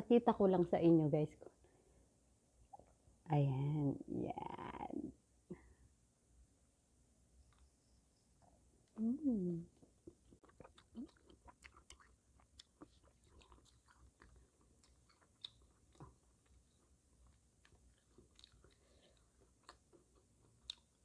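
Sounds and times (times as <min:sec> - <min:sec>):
person chewing: 0:09.8 - 0:21.0.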